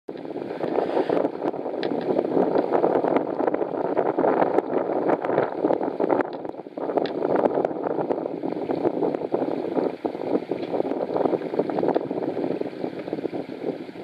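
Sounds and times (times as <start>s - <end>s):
crackles and clicks: 0.1s - 9.2s, 10.6s - 12.1s
wind blowing over microphone: 0.1s - 14.0s.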